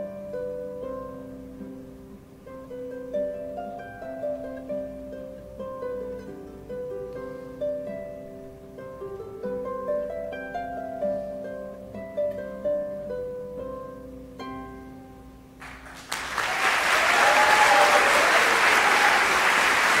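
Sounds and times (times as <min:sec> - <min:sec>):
harp playing: 0:00.0 - 0:16.1
audience applause: 0:15.6 - 0:20.0.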